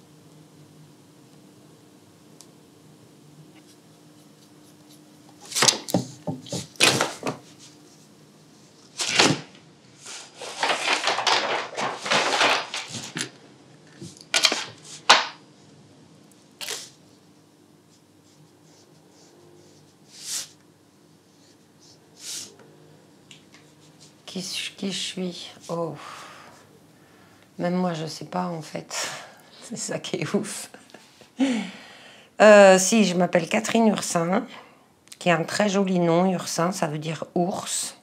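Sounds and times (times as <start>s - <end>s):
faint steady hum: 0.0s - 38.0s
brush scratching on paper: 17.9s - 20.5s.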